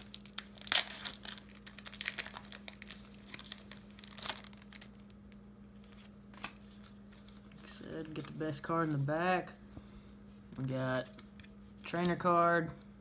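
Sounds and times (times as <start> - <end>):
foil wrapper crinkling: 0.0 - 8.3.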